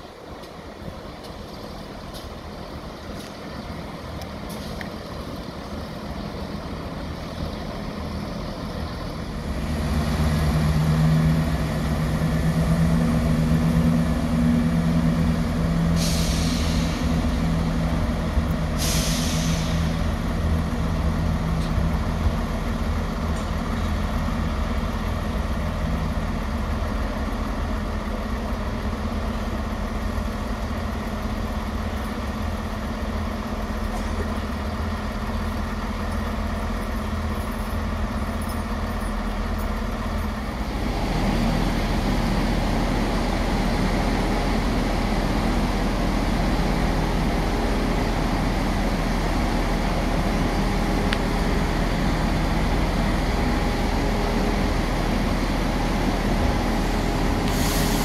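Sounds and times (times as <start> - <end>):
diesel train engine humming: 0.0 - 58.0
compressed air hisses: 15.9 - 17.2, 18.7 - 20.0, 57.4 - 58.0.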